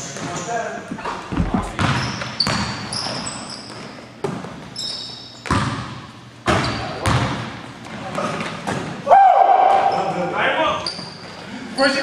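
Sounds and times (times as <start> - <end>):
sneaker squeaks: 0.1 - 7.4, 9.8 - 12.0
basketball bouncing on gym floor: 1.0 - 4.7, 5.4 - 8.9.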